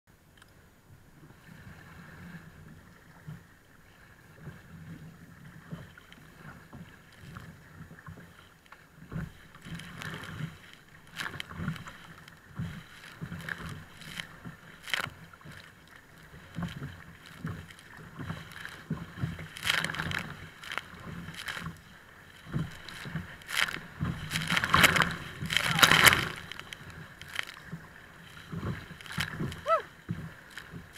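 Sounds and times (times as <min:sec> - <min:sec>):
water splashing against kayak: 0:00.1 - 0:30.9
water spraying onto camera: 0:22.8 - 0:27.5.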